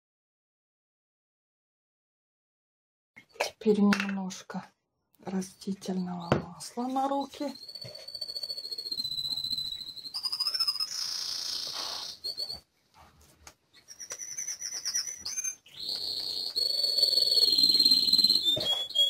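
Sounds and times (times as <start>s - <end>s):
high thin whistling: 5.6s - 12.7s, 13.7s - 19.0s.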